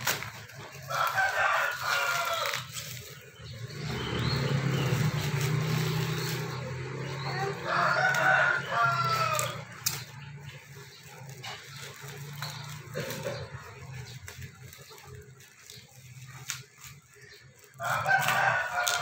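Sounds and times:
rooster crowing: 0.7s - 3.0s, 7.3s - 9.8s, 17.8s - 19.0s.

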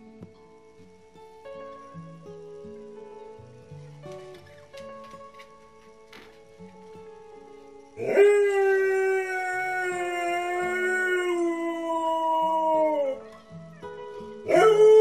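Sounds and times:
dog howling: 8.0s - 15.0s.

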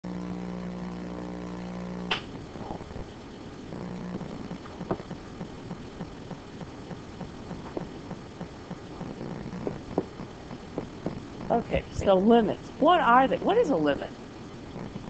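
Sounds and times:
buzzing hum: 0.0s - 15.0s
sharp click: 2.1s - 2.3s.

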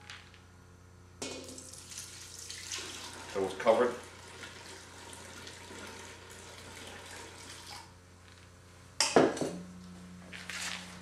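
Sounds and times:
water pouring into a metal pot: 1.4s - 7.9s.

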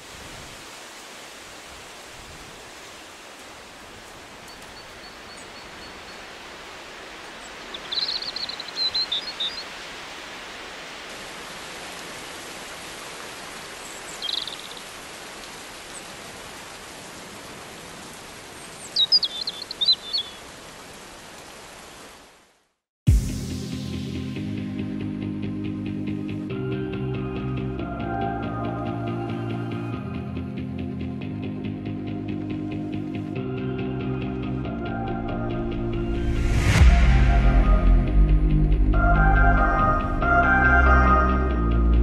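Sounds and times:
bird chirping: 7.4s - 9.7s, 13.9s - 14.9s, 18.6s - 20.4s
music: 23.1s - 42.0s.

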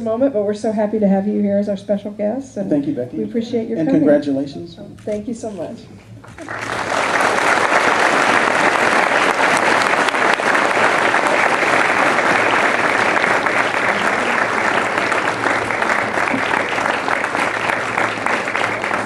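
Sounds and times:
audience applauding: 6.2s - 19.0s.

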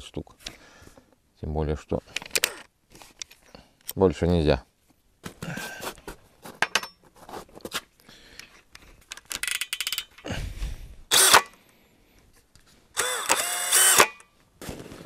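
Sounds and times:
metal parts clicking and knocking: 9.1s - 10.3s
drill motor spinning up: 11.1s - 11.4s, 13.0s - 14.2s.

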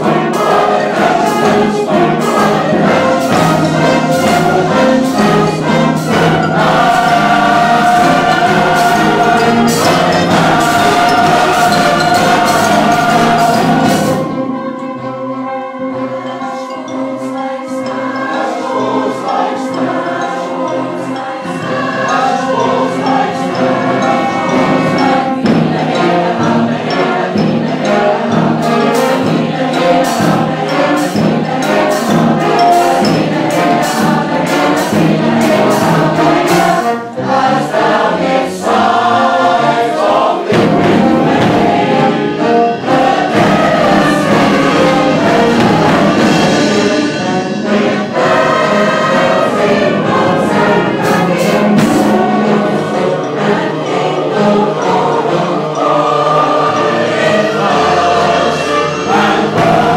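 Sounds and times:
choir singing with band: 0.0s - 59.9s
percussive hits: 42.9s - 52.6s.

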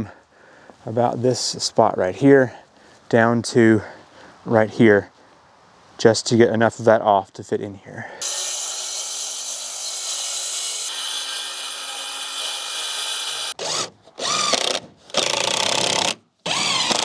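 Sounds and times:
circular saw cutting panel: 8.2s - 14.5s
cordless drill driving screws: 11.1s - 17.0s.

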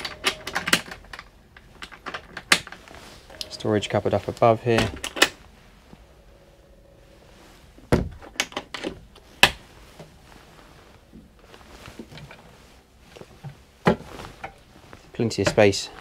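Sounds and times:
cupboard doors clicking and knocking: 7.9s - 9.6s.

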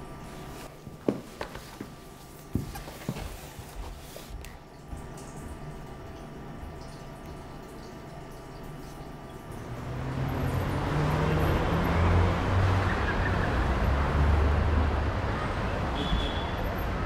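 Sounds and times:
road traffic noise: 9.4s - 17.0s.

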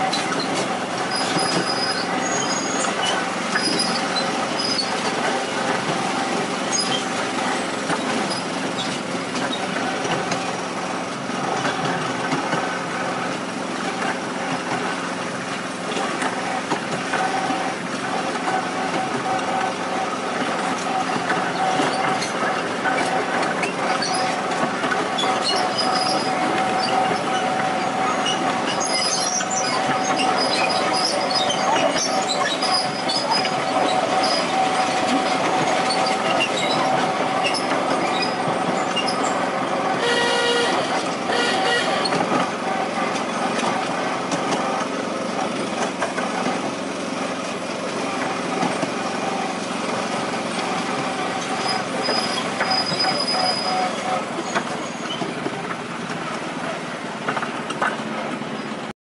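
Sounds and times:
train wheels running on rails: 0.0s - 58.9s
train whine: 0.0s - 58.9s
train horn toot: 40.0s - 42.2s.

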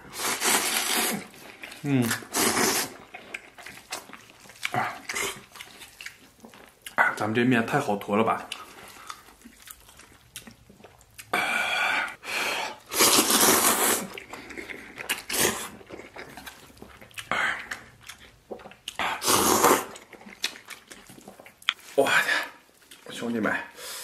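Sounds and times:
person slurping noodles: 0.0s - 3.1s, 11.4s - 15.8s, 19.0s - 20.0s
quiet chewing: 0.3s - 7.2s, 8.4s - 11.4s, 14.0s - 19.2s, 19.8s - 23.3s.

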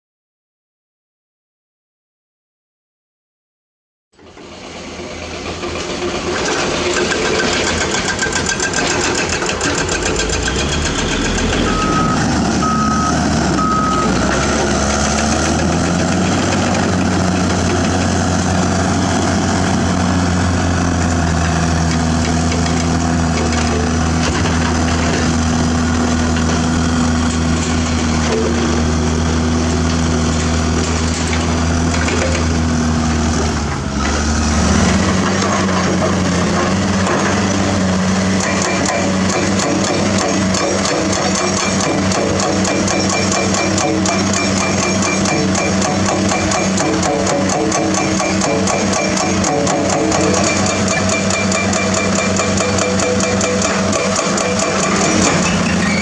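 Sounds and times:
bulldozer engine under load: 4.2s - 56.0s
heavy diesel machinery: 4.2s - 56.0s
backup alarm beeping: 10.4s - 14.4s, 42.8s - 46.8s, 47.8s - 54.7s.

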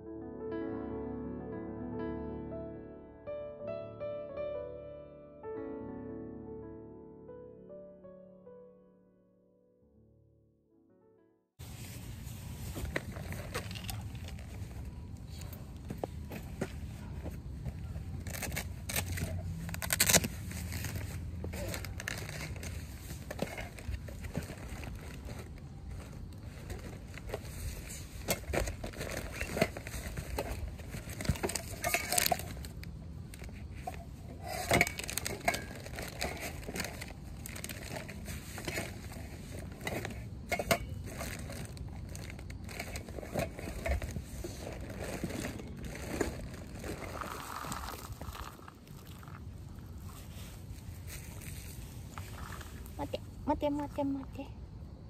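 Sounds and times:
crinkling and rustling handling: 11.6s - 54.0s.

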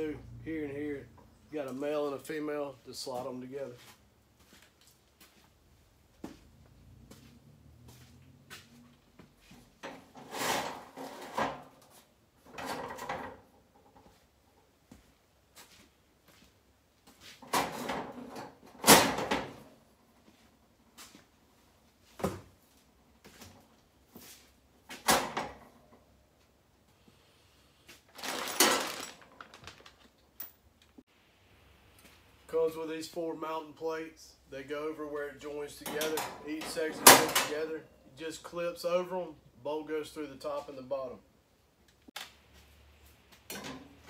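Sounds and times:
plastic bag rustling: 28.0s - 30.4s.

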